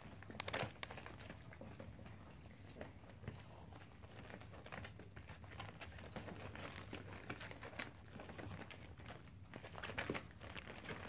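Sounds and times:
paws shuffling on plastic tarp: 2.9 - 11.0.

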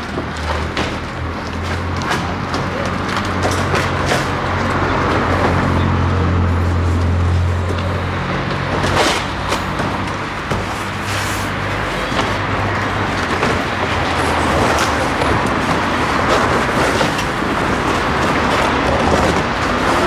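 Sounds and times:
street traffic: 0.0 - 20.0
cardboard panels scraping: 8.6 - 20.0.

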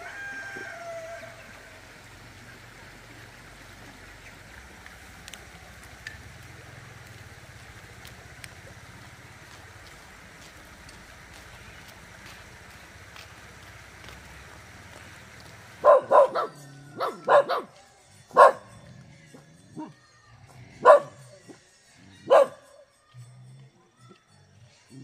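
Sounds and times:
dog barking: 15.8 - 17.7, 18.3 - 18.8, 20.8 - 21.3, 22.2 - 22.7.

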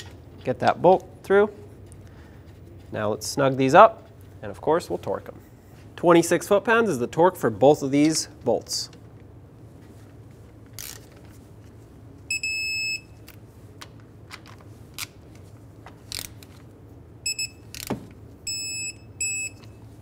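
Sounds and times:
torque wrench beeping: 17.3 - 17.9, 18.5 - 19.8.

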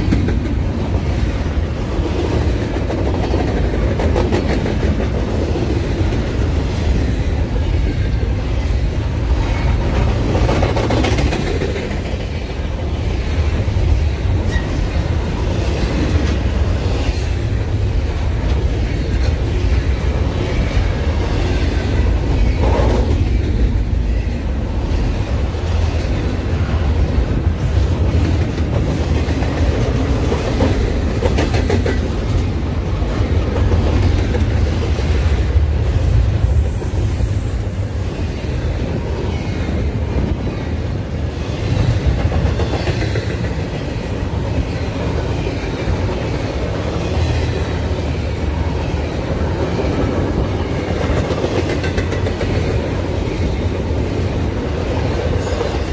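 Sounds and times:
freight train rumbling past: 0.0 - 55.9
rapid train wheel clicks: 9.8 - 12.7, 49.9 - 53.0.

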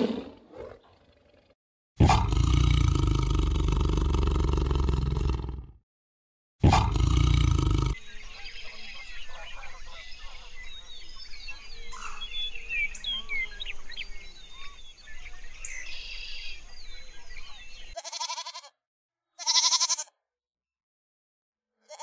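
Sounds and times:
small birds chirping: 6.9 - 18.4
goat bleating: 18.0 - 18.8, 19.4 - 20.2.

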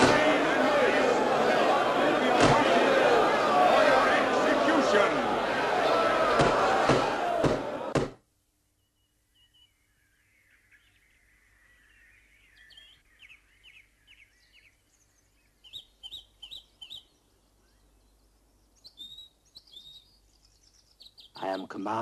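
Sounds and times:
small birds chirping: 8.7 - 22.0.

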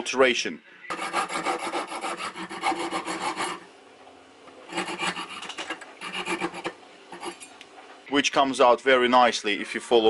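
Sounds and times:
hacksaw cutting metal: 0.9 - 3.6, 4.7 - 7.5.

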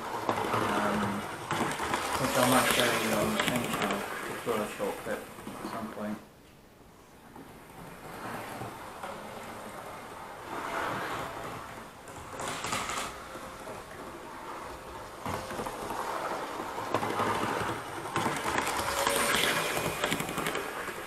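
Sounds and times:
model train rattling on track: 0.0 - 5.2, 9.8 - 21.0
track clicks: 15.2 - 21.0.

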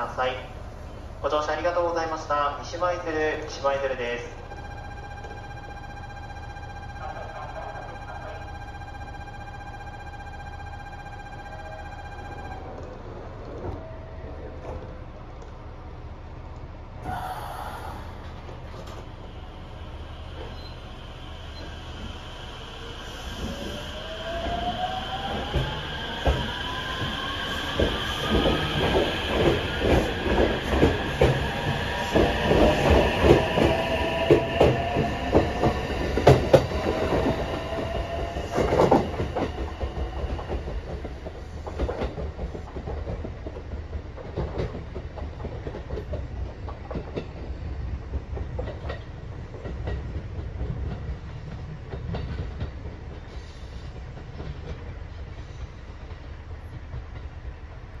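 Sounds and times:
electric train motor whine: 4.3 - 14.4, 17.1 - 42.4
wheels clacking over rail joints: 25.4 - 58.0.

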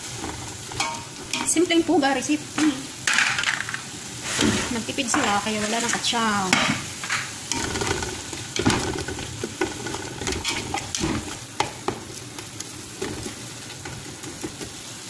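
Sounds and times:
food sizzling in pot: 0.0 - 15.0
utensil scraping and tapping pot: 0.1 - 1.7, 4.4 - 14.8.

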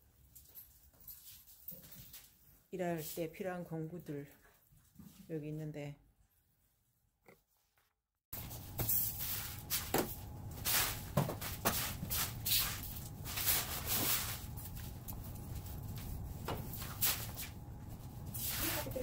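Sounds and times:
broom sweeping concrete floor: 8.4 - 19.0.

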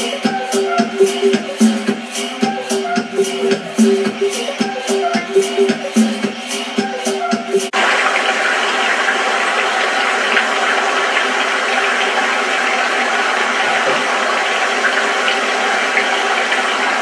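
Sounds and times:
electronic music: 0.0 - 7.8.

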